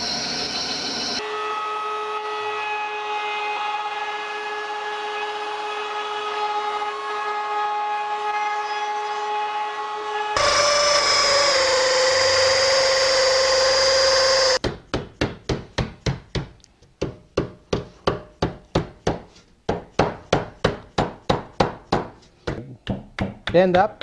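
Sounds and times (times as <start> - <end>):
loud machine whine: 0.0 - 1.4, 10.4 - 14.6.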